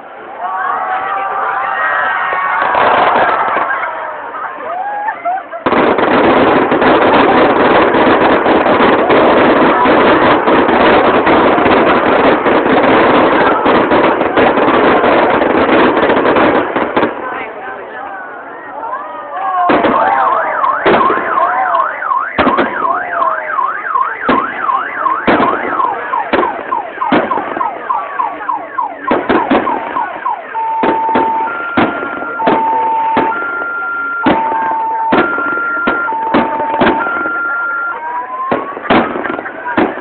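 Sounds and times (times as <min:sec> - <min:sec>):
fireworks bursting: 0:01.4 - 0:17.7, 0:19.4 - 0:40.0
electronic alarm siren: 0:20.0 - 0:38.8.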